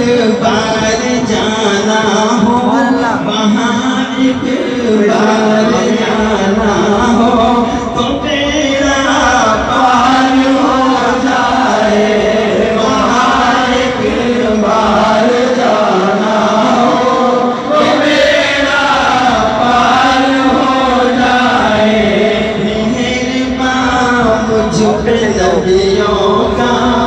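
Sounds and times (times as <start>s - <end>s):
lead voice singing: 0.0s - 27.0s
men chanting devotional verse: 0.0s - 27.0s.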